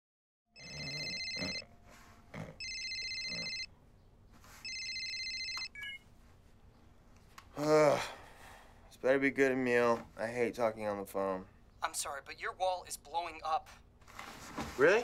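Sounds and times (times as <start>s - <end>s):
mobile phone ringing: 0.6s - 1.9s, 2.6s - 3.7s, 4.6s - 6.1s.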